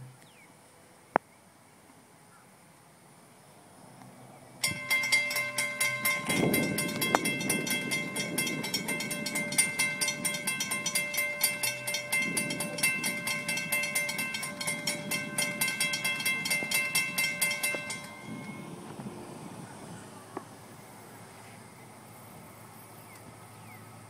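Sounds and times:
crossing warning bell ringing: 4.6s - 20.2s.

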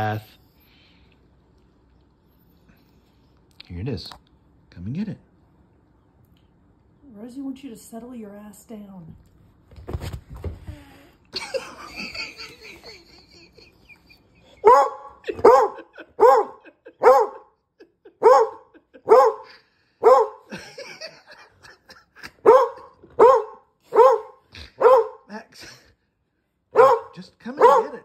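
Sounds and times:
dog barking: 14.6s - 17.5s, 18.2s - 20.5s, 22.4s - 25.3s, 26.7s - 28.0s.

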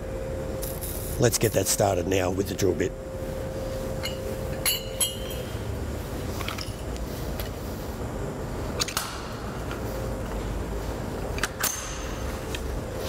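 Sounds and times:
steady low hum: 0.0s - 13.0s
metallic clinks of tools: 4.0s - 5.5s.

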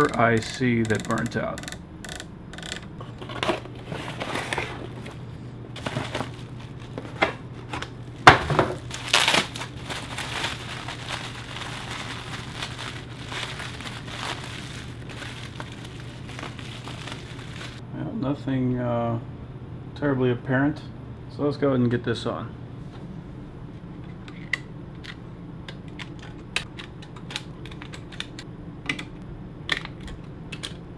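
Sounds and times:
steady low hum: 0.0s - 30.9s
bubble wrap crinkling: 5.8s - 17.8s.

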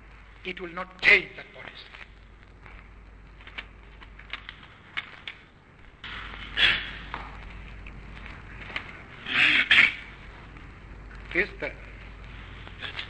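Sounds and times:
recording hiss: 0.0s - 13.0s
faint clicks: 1.8s - 5.8s
burst of noise: 4.8s - 13.0s.

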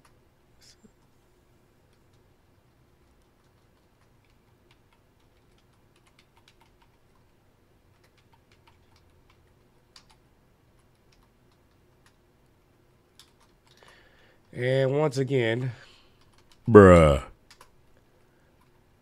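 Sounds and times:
typing on a computer keyboard: 1.9s - 12.2s, 13.1s - 14.0s, 16.2s - 16.6s, 17.4s - 17.8s.

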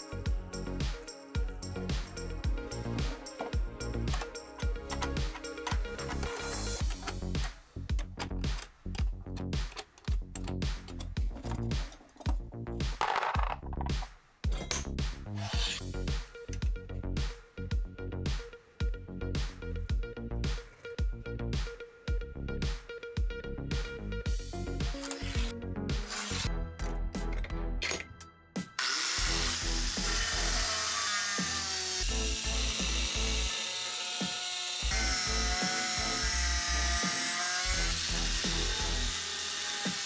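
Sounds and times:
electronic music with steady beat: 0.0s - 13.0s, 15.8s - 27.4s
angle grinder cutting steel: 25.0s - 26.5s, 28.7s - 40.0s.

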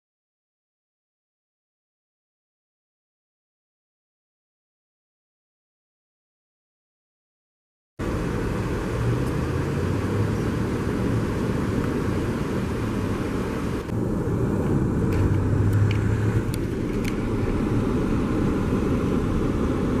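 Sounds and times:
low engine hum: 8.0s - 20.0s
road traffic: 8.0s - 20.0s.

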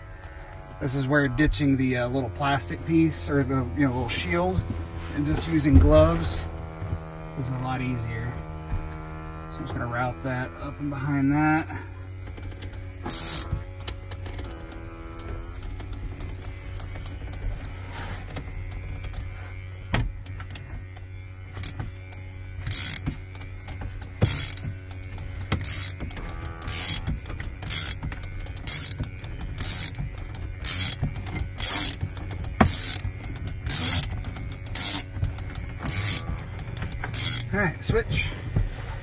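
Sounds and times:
low hum: 0.0s - 39.0s
ratchet clicks: 10.8s - 38.0s.

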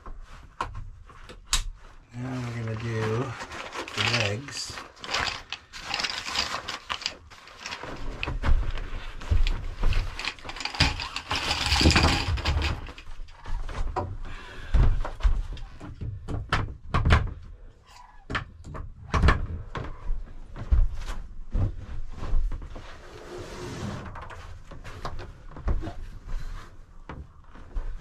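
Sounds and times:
fabric rustle: 1.8s - 13.8s
cot frame clicking and knocking: 3.8s - 14.1s.

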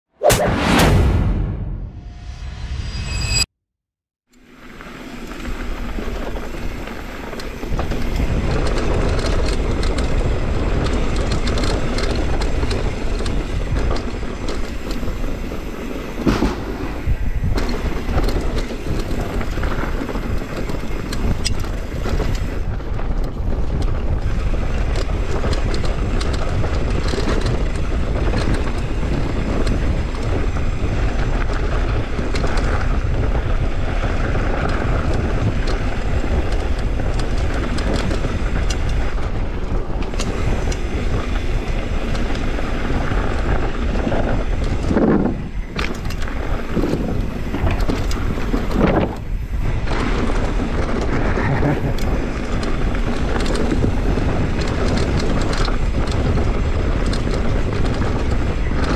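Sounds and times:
sharp knock: 0.2s - 3.4s
tyres on dirt and gravel: 4.4s - 58.9s
bike chain and frame rattling: 4.5s - 58.9s
wind on microphone: 7.6s - 58.9s.

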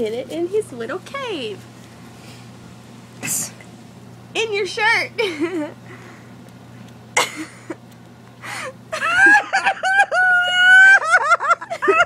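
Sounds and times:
person squealing cries: 9.0s - 11.3s.

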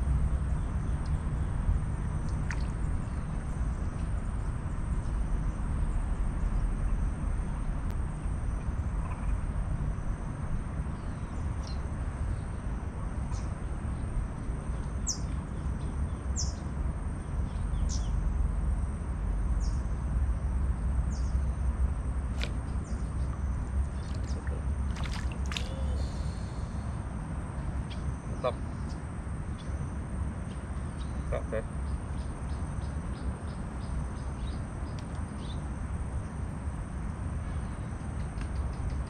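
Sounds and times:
steady low rumble: 0.0s - 39.0s
high bird calls: 22.4s - 26.8s.

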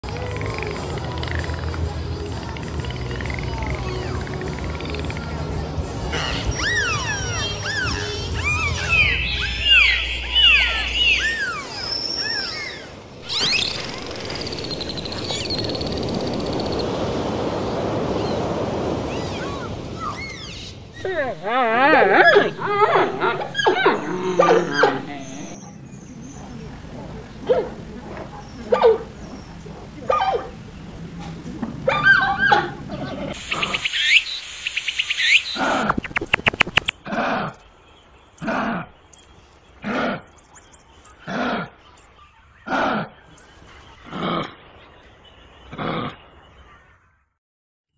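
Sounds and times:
dolphins whistling: 6.1s - 16.9s, 19.1s - 25.6s, 31.8s - 36.9s
panda chirps and squeaks: 6.2s - 16.8s
dolphin buzzing pulsed call: 6.6s - 16.8s, 21.0s - 25.6s
sea water rushing: 13.2s - 25.6s
panda whining bleats: 21.0s - 25.6s.

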